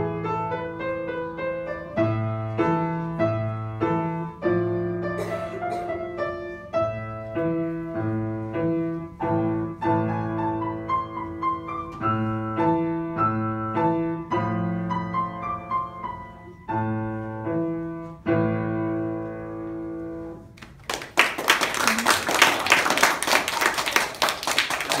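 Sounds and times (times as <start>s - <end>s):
upright piano playing: 0.0s - 20.6s
children clapping: 20.6s - 25.0s.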